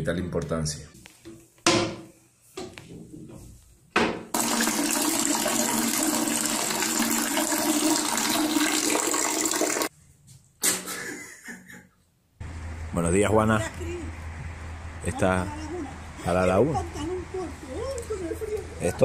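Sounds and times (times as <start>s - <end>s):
liquid splashing into toilet bowl: 4.3s - 9.9s.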